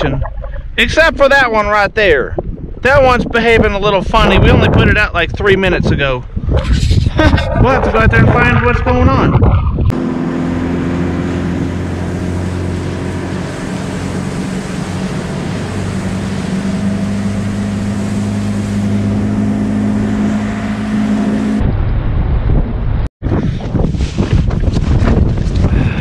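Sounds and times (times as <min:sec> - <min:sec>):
wind noise on microphone: 0:00.0 - 0:10.0, 0:19.9 - 0:26.0
outboard motor running: 0:06.6 - 0:21.6.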